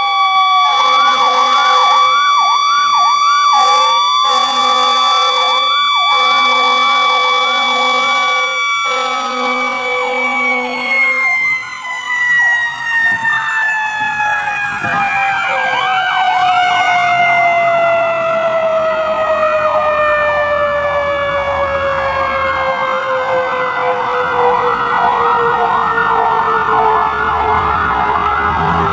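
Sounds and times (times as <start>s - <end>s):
siren falling wail: 0.0s - 28.9s
siren yelping: 0.0s - 28.9s
horn blasts: 0.6s - 2.1s, 3.6s - 11.4s.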